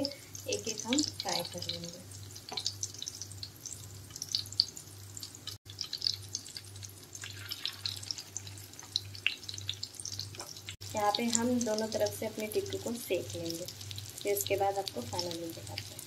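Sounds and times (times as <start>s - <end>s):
patties sizzling in hot oil: 0.0s - 16.0s.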